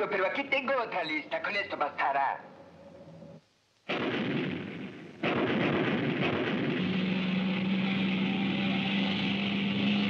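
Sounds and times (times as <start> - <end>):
cartoon explosion blasts: 3.9 - 7.7.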